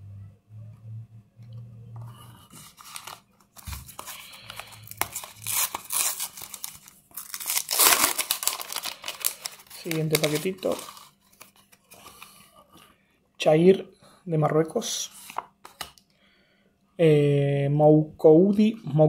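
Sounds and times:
sticker packet crinkling and tearing: 0:02.6 - 0:12.3.

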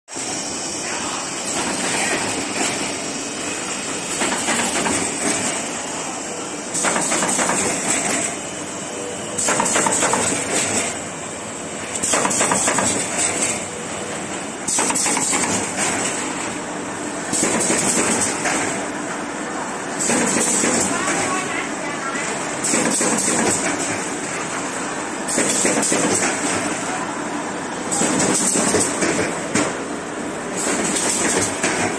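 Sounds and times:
cardboard assembly machine clattering: 0:30.6 - 0:31.9.

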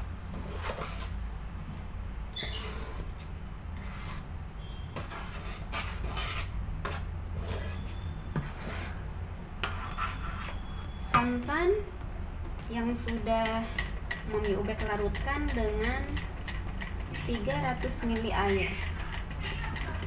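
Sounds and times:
spatula scraping flour in wok: 0:00.3 - 0:01.2, 0:02.4 - 0:10.8.

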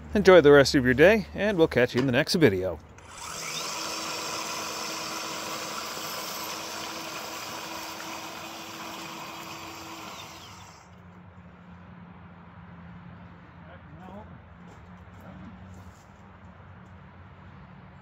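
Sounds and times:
model railway vehicle humming: 0:03.0 - 0:11.0.

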